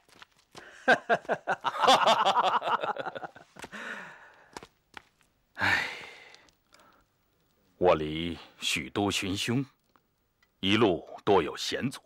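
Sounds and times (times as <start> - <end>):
man laughing heartily: 0.8 - 3.9.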